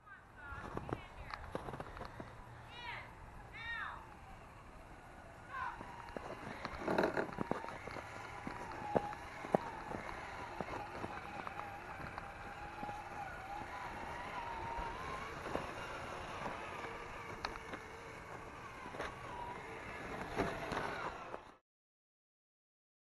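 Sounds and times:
electric motor and gears whining: 0.4 - 21.6
scattered clicks and knocks: 5.8 - 21.1.

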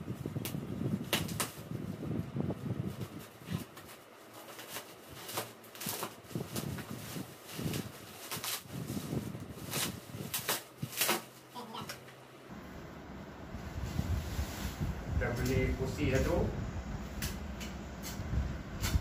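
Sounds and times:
plastic wrapping rustling: 0.1 - 12.0.

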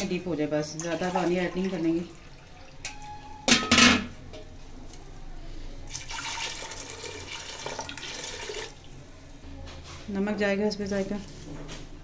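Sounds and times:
water pouring into a pot: 0.7 - 3.0, 5.9 - 8.9.

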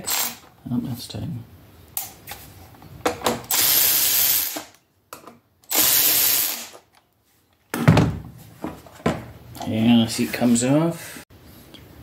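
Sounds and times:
electric ratchet motor whirring: 0.0 - 0.4, 3.5 - 4.7, 5.7 - 6.8.

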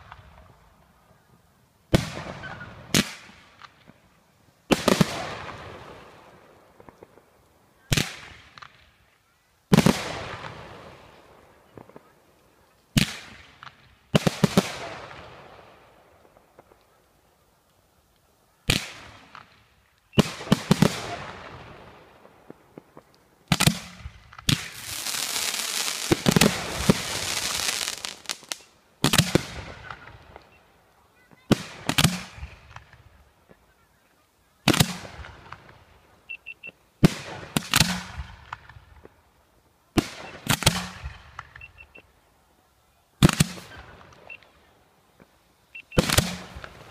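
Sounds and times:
fireworks crackling: 0.0 - 46.9.

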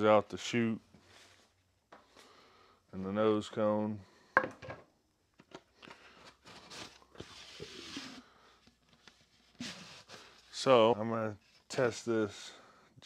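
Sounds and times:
soft rustling scrape: 1.0 - 1.6, 9.0 - 12.0.

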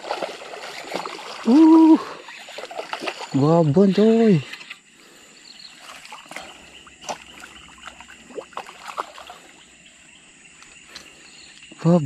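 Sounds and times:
fish thrashing in shallow water: 0.0 - 4.9, 5.6 - 9.8
insects chirring: 0.0 - 12.0.

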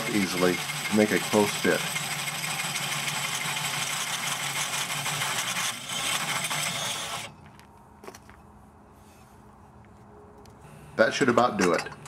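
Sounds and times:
drill with hole saw cutting metal: 0.0 - 7.4.

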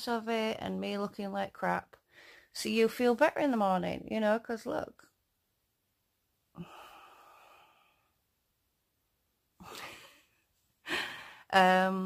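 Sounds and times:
woman sighing: 6.6 - 7.9, 9.6 - 11.5
woman breathing out: 6.6 - 8.2, 9.6 - 11.5.

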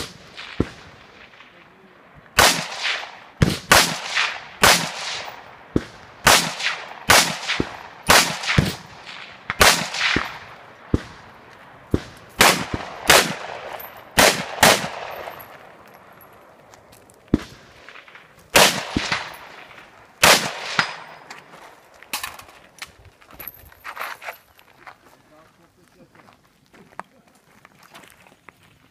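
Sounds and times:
rifle shots echoing: 0.0 - 22.6.

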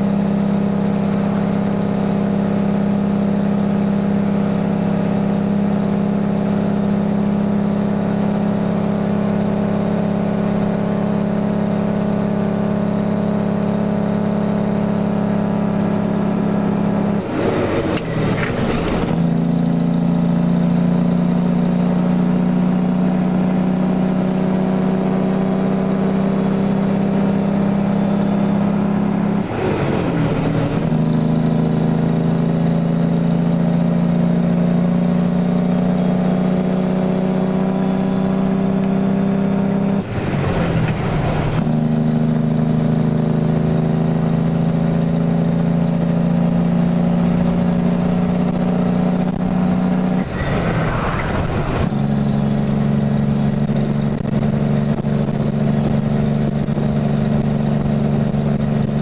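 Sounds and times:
truck engine compression brake: 17.3 - 19.2.

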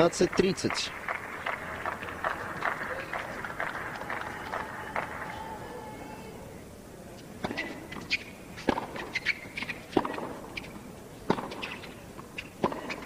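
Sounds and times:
tennis ball bouncing on hard court: 7.4 - 13.0
tennis ball struck by rackets: 7.4 - 13.0.

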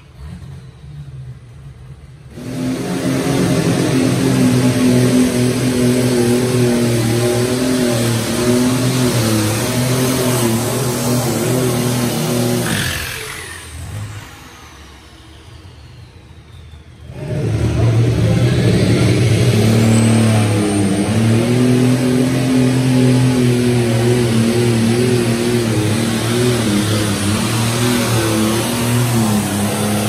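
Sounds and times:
tractor engine running wide open: 0.0 - 30.0.

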